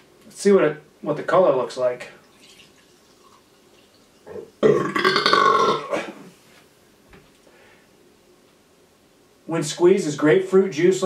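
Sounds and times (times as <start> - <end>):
drink pouring into glass: 2.2 - 5.7
man burping: 4.3 - 6.3.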